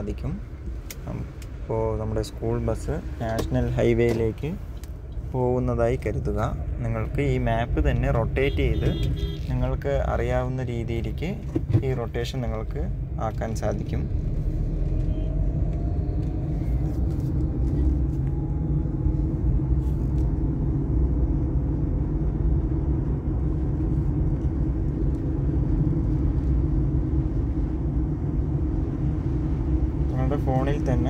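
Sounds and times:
vehicle engine rumble: 0.0s - 31.0s
faint rising whine: 12.3s - 31.0s.

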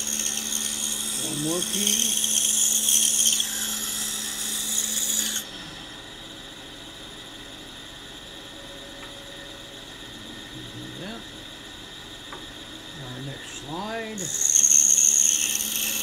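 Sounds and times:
band saw rasping through wood: 0.0s - 5.6s, 13.7s - 16.0s
band saw humming: 0.0s - 16.0s.

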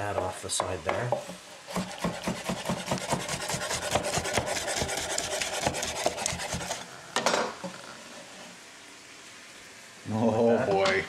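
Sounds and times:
knife sawing on cutting board: 1.7s - 6.8s.

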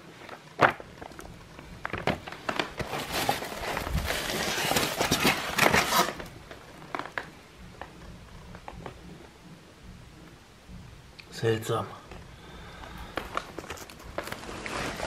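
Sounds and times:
paper rustling and crinkling: 0.0s - 7.3s, 13.0s - 15.0s.

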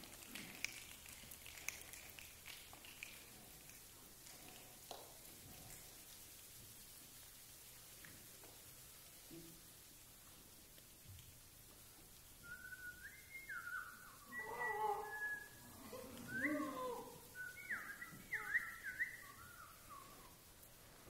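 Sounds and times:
choir imitating bird and animal calls: 12.7s - 20.4s.

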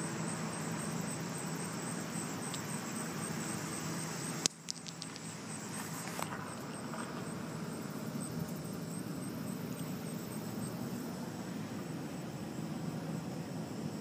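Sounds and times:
outdoor background hiss: 0.0s - 14.0s
faint ticks: 2.5s - 2.8s, 4.4s - 7.3s.

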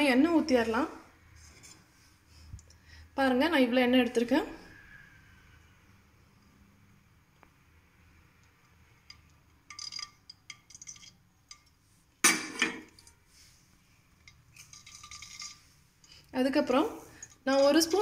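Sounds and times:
kitchenware clinking and tapping: 9.0s - 13.2s
kitchenware clatter: 9.1s - 13.2s, 14.2s - 15.7s.

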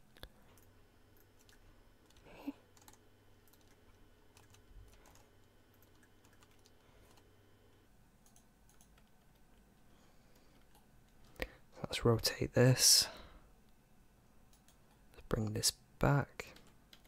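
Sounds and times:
keyboard keystrokes and clicks: 0.2s - 7.3s, 8.2s - 11.4s, 14.5s - 15.0s, 16.4s - 17.0s.

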